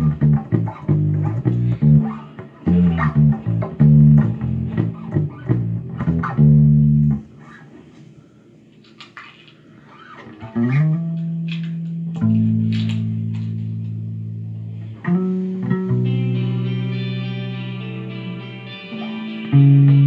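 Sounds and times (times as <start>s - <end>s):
electric guitar held notes: 10.4s - 20.0s.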